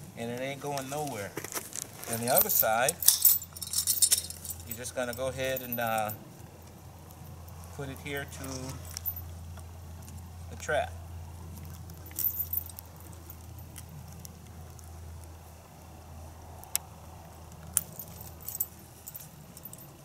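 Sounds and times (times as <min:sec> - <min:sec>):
metal clips clinking: 0:02.0 - 0:06.2.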